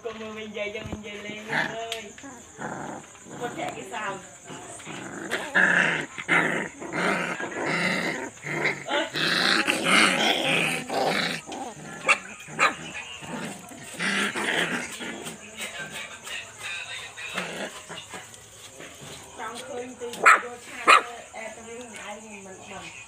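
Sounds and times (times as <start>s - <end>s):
puppies growling and yapping: 1.3s - 16.4s, 17.0s - 19.4s.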